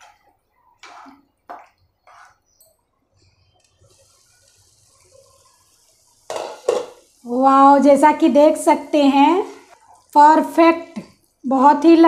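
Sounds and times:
spatula scraping steel pan: 0.0 - 1.3, 2.0 - 2.6
faint sizzle: 0.0 - 12.0.

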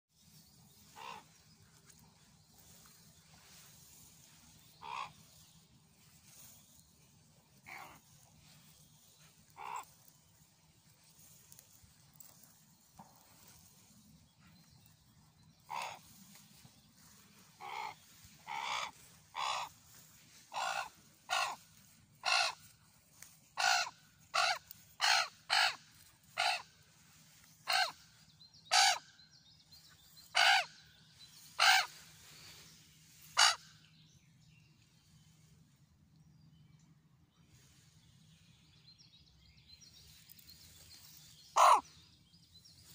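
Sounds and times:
raven cawing: 0.9 - 1.3, 4.8 - 5.2, 9.5 - 9.9, 15.7 - 16.1, 17.6 - 19.8, 20.5 - 21.6, 22.2 - 22.7, 23.6 - 25.8, 26.4 - 26.7, 27.7 - 28.0, 28.7 - 29.0, 30.4 - 30.7, 31.6 - 31.9, 33.4 - 33.6, 41.6 - 41.8.

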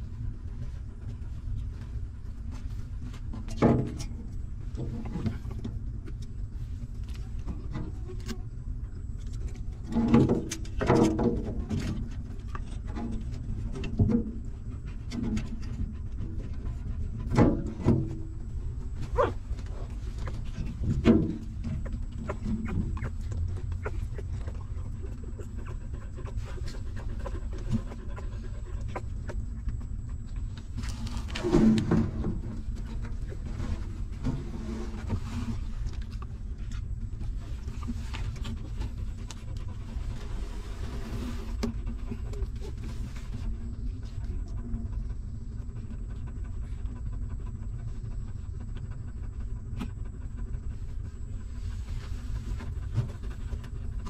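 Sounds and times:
steady low rumble: 0.0 - 54.0
dog panting: 12.2 - 34.4, 35.1 - 54.0
puppies suckling clicks: 19.2 - 31.2.

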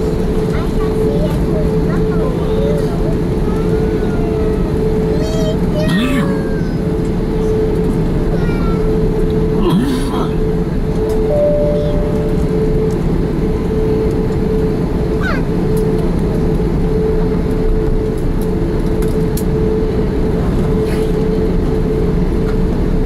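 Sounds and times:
aircraft cabin rumble: 0.0 - 23.0
droning tone: 9.4 - 15.0.

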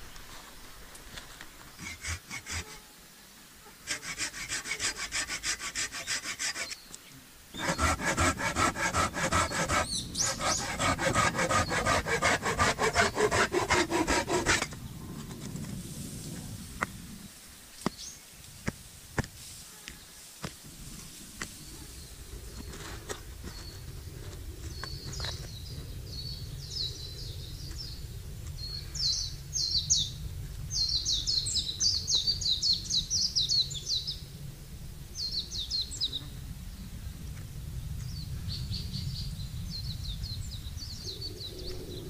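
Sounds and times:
saw cutting wood: 1.8 - 2.8, 3.8 - 6.8, 7.6 - 14.8.

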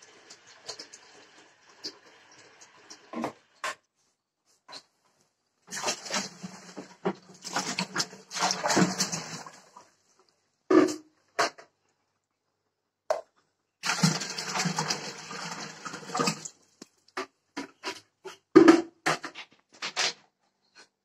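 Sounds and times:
liquid yogurt pouring into pot: 13.8 - 17.2.

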